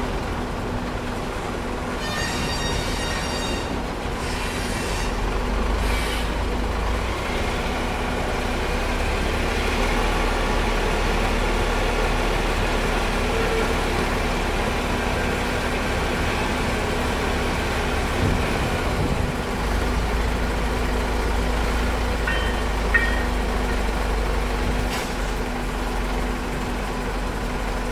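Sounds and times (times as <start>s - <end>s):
diesel locomotive engine running: 0.0s - 27.9s
brief high squeak: 2.0s - 5.2s.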